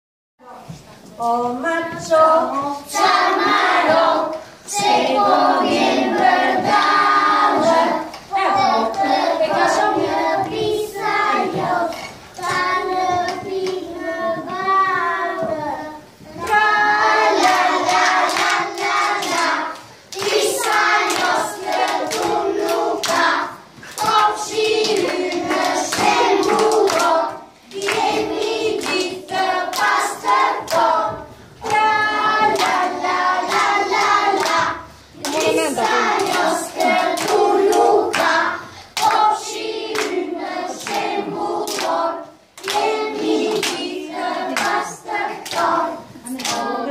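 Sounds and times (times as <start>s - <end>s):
children singing together: 1.9s - 46.9s
hands clapping along: 17.4s - 31.0s, 31.6s - 42.0s, 42.6s - 46.7s.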